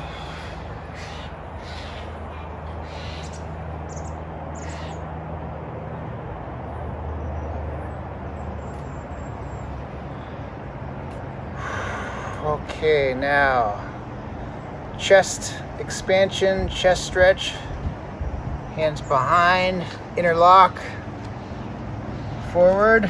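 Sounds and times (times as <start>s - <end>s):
low outdoor hum: 0.0s - 23.0s
crow cawing: 0.1s - 3.4s, 4.6s - 5.0s.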